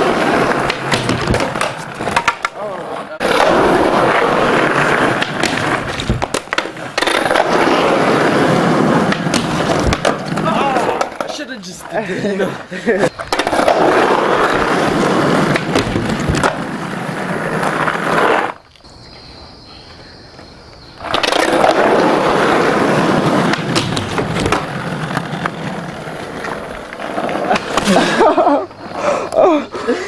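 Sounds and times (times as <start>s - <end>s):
skateboard clicks and knocks: 0.0s - 18.9s, 19.9s - 29.4s
skateboard wheels rolling: 0.0s - 30.0s.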